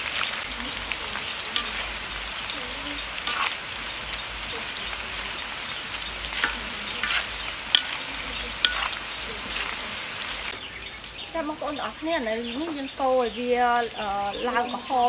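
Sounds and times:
food sizzling in hot oil: 0.0s - 15.0s
utensil clicks in wok: 6.4s - 9.0s.

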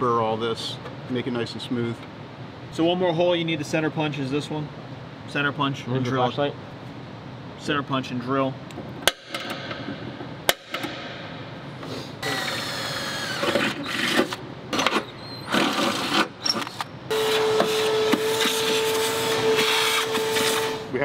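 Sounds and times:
cordless drill spinning: 12.2s - 14.1s
shop vacuum humming: 17.1s - 21.0s.

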